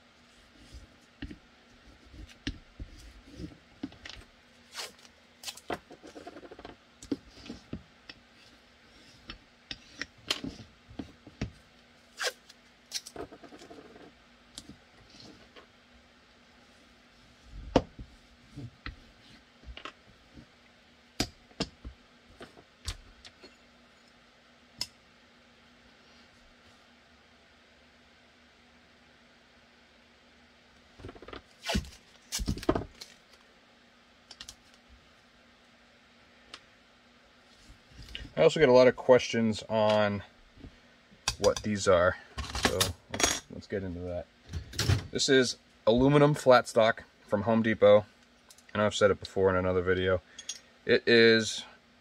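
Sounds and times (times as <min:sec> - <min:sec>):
tape being pulled and torn: 0:04.6 - 0:05.8, 0:12.1 - 0:13.2, 0:31.4 - 0:33.4.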